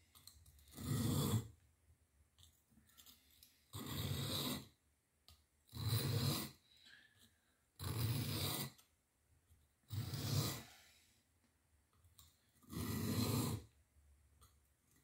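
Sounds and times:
knife rasping on sharpening stone: 3.7 - 4.7, 5.7 - 6.6, 7.8 - 8.8, 9.9 - 10.7, 12.7 - 13.7.

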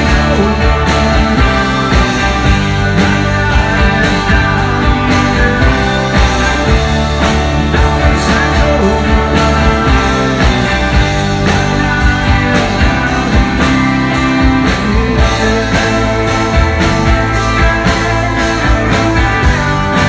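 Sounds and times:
bass guitar: 0.0 - 20.0
drum kit beat: 0.0 - 20.0
electric guitars: 0.0 - 20.0.

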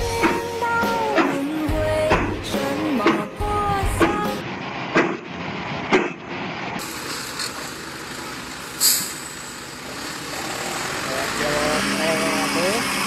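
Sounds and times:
truck engine running: 0.0 - 13.0
sharp knocks: 2.1 - 3.3, 4.9 - 5.3, 5.9 - 6.2
short hiss: 8.8 - 9.4.

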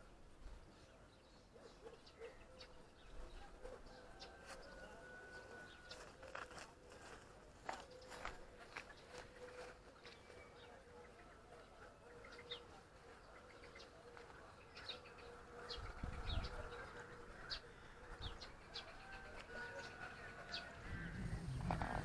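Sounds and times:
small birds chirping: 0.4 - 22.0
low wind rumble on microphone: 15.8 - 16.8, 20.7 - 22.0.

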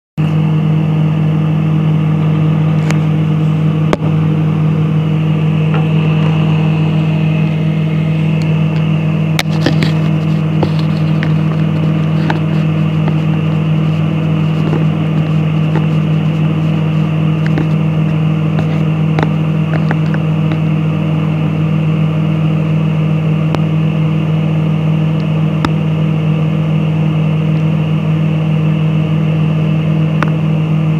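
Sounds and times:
microwave oven humming: 0.2 - 30.9
sharp clicks and crackles: 8.4 - 20.7.

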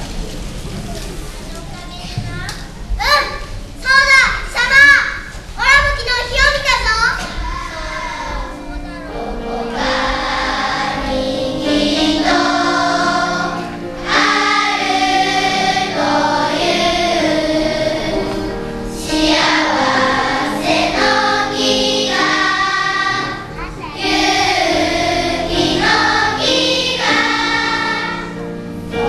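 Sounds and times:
children's choir singing: 7.2 - 29.0.

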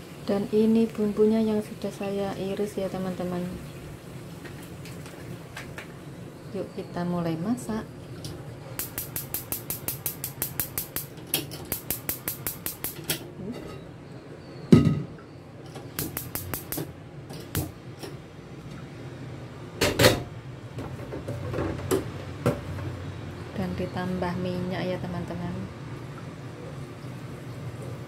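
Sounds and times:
wok knocking on burner: 8.8 - 13.1, 16.0 - 16.9
gas stove igniter clicking: 8.8 - 13.2, 16.0 - 17.8
wok clattering: 8.8 - 13.2, 16.0 - 17.8.

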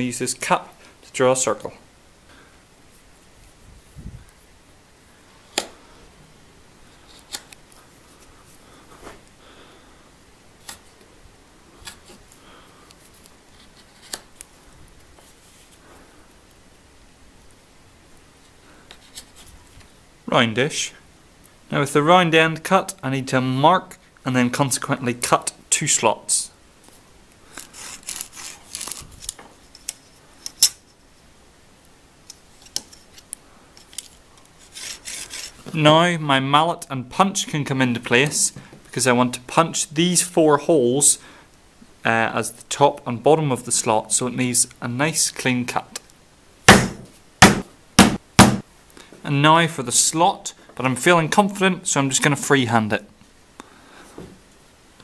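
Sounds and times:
knife cutting leather: 27.6 - 29.0, 34.6 - 35.6
ruler rubbing on leather: 34.6 - 35.6.

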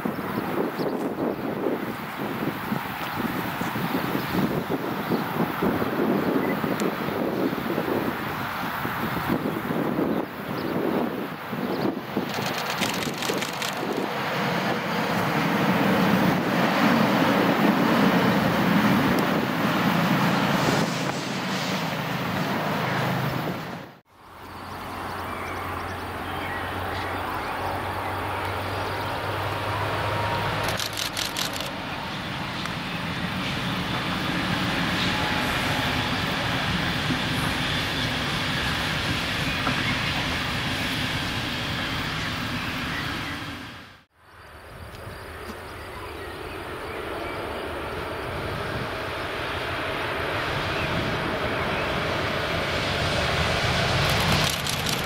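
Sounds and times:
train wheels rumbling on rails: 0.0 - 44.1, 46.9 - 55.0
quieter train rolling rumble: 0.0 - 55.0.

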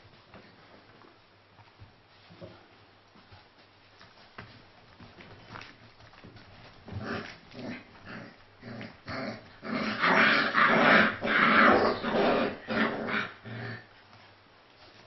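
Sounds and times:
puppies growling: 6.2 - 14.0.

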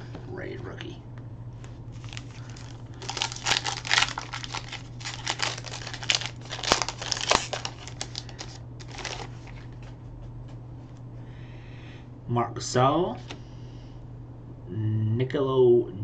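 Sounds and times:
foil wrapper crinkling: 1.9 - 9.8.

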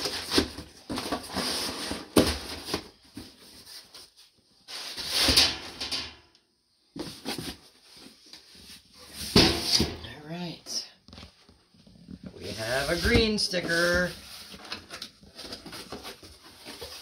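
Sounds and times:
boxes thumping together: 0.0 - 3.5, 9.2 - 10.1
paper and cardboard rustling: 0.0 - 5.7, 6.9 - 10.1, 11.1 - 17.0.

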